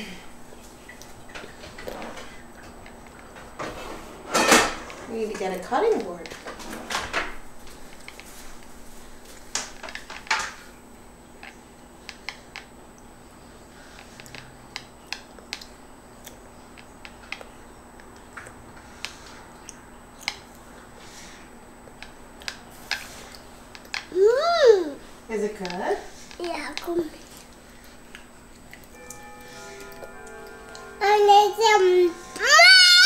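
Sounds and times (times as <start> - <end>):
faint steady hum: 0.0 - 33.0
kitchen utensils and dishes clicking: 4.3 - 5.6.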